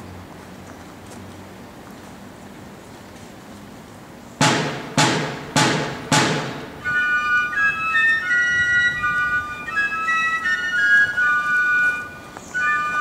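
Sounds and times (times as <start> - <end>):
rope-tension drums striking: 4.4 - 7.2
fifes playing shrill melody: 4.4 - 9.5.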